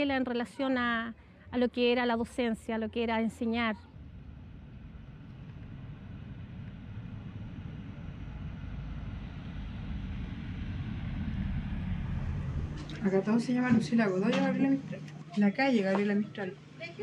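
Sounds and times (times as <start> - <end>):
low traffic rumble: 0.0 - 17.0.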